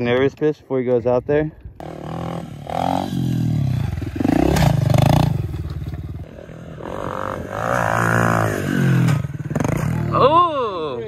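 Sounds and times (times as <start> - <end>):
dirt bike engine revving: 1.8 - 10.4.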